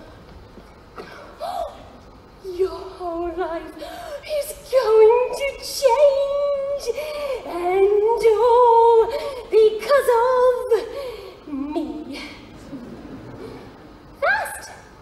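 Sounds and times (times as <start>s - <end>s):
woman singing: 2.4s - 12.2s.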